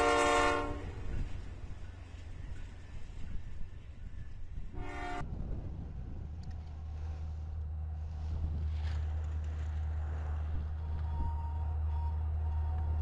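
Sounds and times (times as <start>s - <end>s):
locomotive air horn blast: 0.0s - 1.2s, 4.7s - 5.3s
diesel locomotives rumbling: 0.0s - 13.0s.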